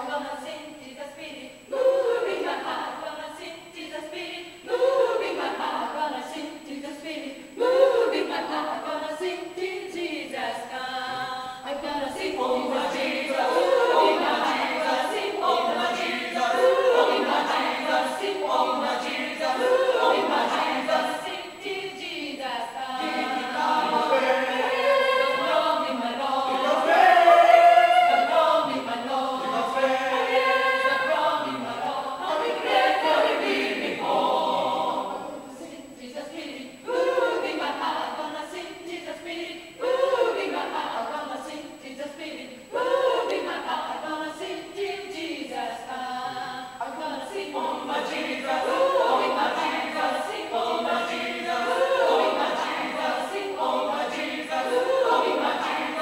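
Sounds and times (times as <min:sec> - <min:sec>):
choir singing a cappella: 0:00.0 - 0:56.0.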